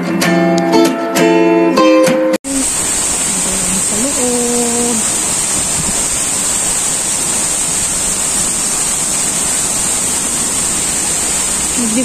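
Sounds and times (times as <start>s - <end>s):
water rushing down stone wall: 2.5s - 12.0s.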